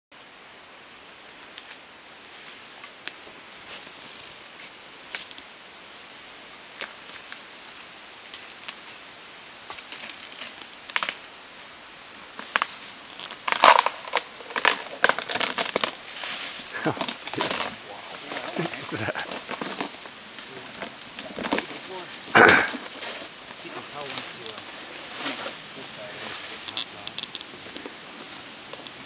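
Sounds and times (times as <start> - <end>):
bark cracking and tearing: 9.7 - 11.2, 12.4 - 25.5, 26.6 - 28.0.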